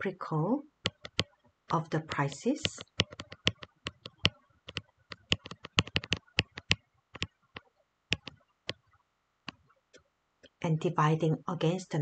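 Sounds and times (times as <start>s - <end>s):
stylus tapping on tablet: 0.8s - 1.4s, 2.1s - 8.8s.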